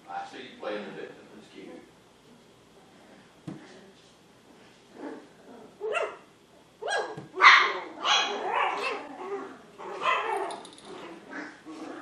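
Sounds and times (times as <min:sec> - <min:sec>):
puppies barking and yipping: 0:05.8 - 0:11.8.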